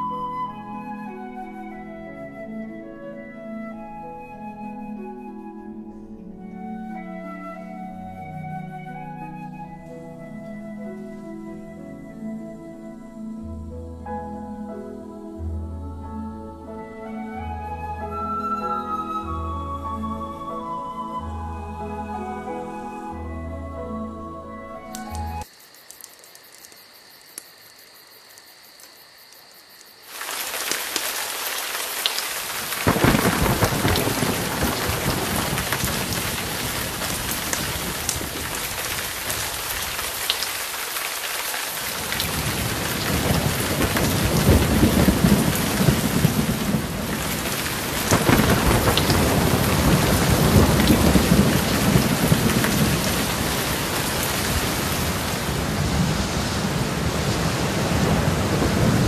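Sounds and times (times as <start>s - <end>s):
heavy rain: 30.0s - 59.0s
rolling thunder: 32.5s - 40.3s, 41.9s - 59.0s.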